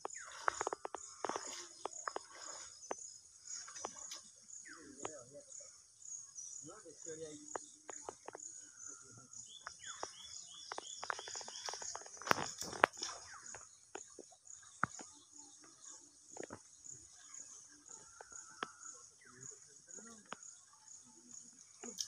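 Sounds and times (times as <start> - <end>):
insects chirping in pulses: 0.0 - 22.0.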